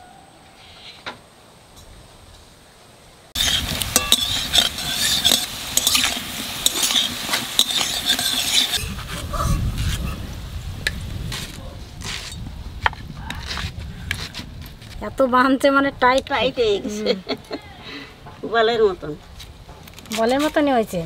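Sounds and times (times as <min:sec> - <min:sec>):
metal spatula scraping a wok: 0:03.4 - 0:10.2
potatoes sizzling in oil: 0:03.4 - 0:11.4.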